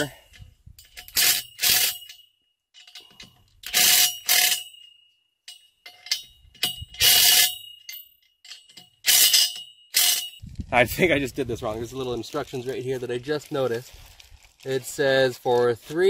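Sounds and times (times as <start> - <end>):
metal grinding with ringing tone: 0.8 - 10.4.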